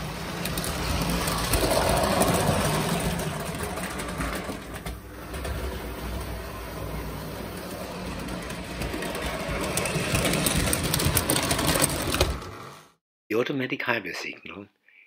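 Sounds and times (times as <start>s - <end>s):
train wheels clicking on track: 0.0s - 12.2s
toy train motor whirring: 5.4s - 12.3s.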